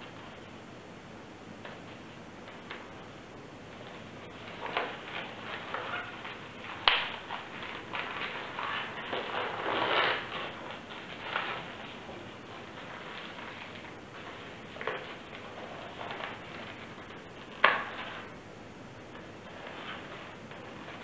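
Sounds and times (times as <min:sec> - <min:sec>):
rubber balloons rubbing: 0:03.8 - 0:18.4.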